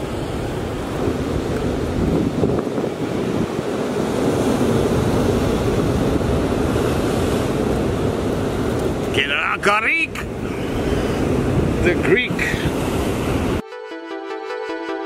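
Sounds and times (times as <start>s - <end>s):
wind on microphone: 0.0s - 9.2s, 10.2s - 13.6s
ocean surf breaking: 0.0s - 13.6s.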